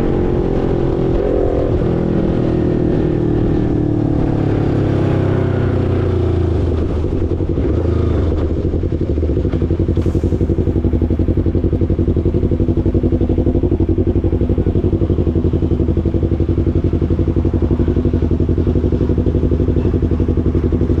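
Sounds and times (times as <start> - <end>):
motorcycle engine idling: 5.5 - 21.0.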